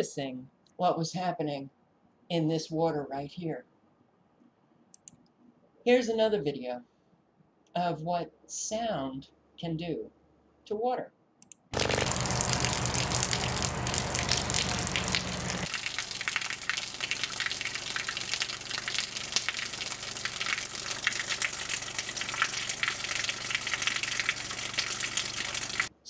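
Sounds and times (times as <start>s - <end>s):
loudspeaker hum: 11.8s - 15.7s
water gushing from a hose: 11.8s - 25.9s.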